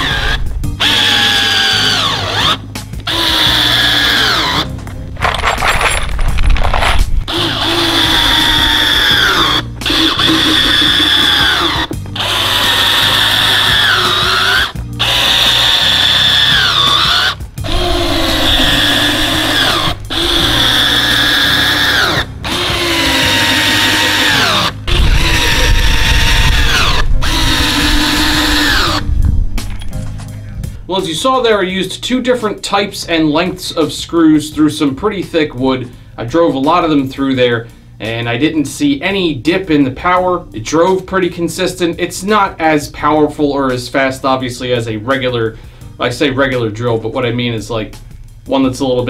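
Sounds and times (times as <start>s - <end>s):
cordless drill driving screws: 0.0s - 4.7s, 7.3s - 29.1s.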